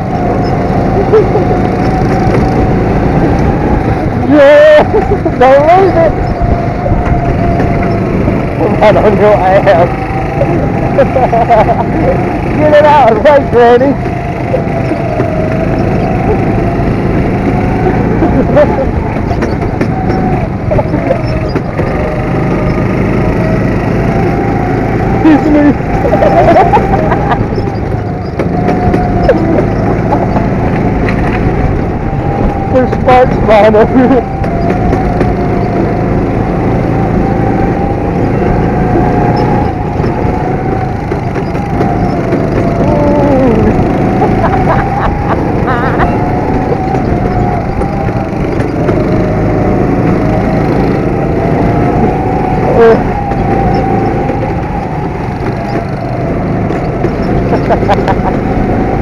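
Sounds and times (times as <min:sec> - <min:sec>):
go-kart engine running: 0:00.0 - 0:59.0
wind noise on microphone: 0:00.0 - 0:59.0.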